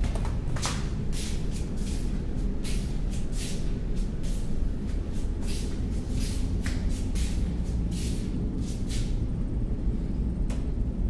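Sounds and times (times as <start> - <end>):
ship engines rumbling: 0.0 - 11.0
hissy rustles: 0.9 - 9.3.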